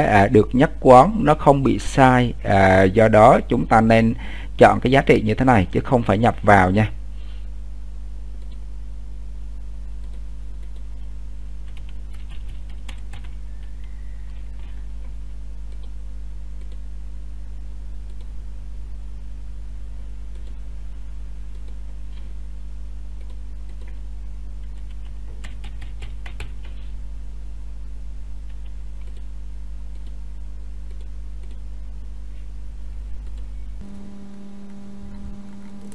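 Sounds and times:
steady low hum: 0:00.0 - 0:35.9
computer keyboard typing: 0:10.0 - 0:13.7, 0:23.2 - 0:24.0, 0:24.6 - 0:26.8, 0:28.5 - 0:29.3.

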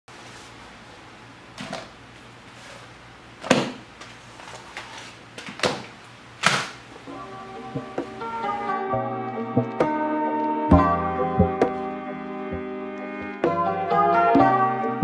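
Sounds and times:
soft music: 0:07.1 - 0:15.0.

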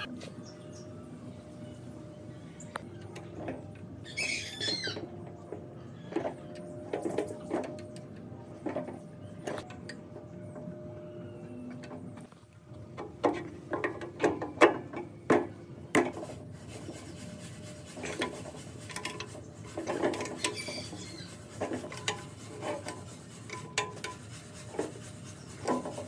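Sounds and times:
wrench clinking and scraping on metal: 0:18.0 - 0:24.9.

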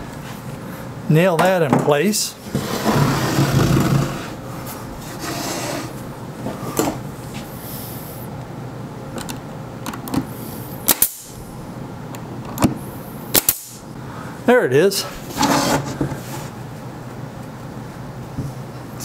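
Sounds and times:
nail gun shots: 0:10.9 - 0:11.4, 0:13.3 - 0:13.8.

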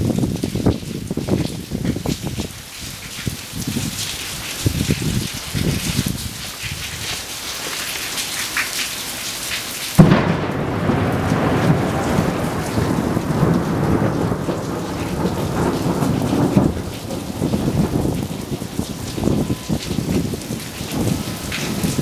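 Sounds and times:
steady rain: 0:00.0 - 0:22.0
thunderclap and rumble: 0:10.0 - 0:22.0.

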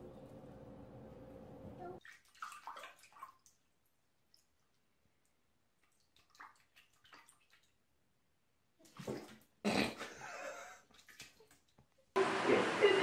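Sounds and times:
cat pawing water splashes: 0:02.0 - 0:04.7, 0:05.8 - 0:07.8.

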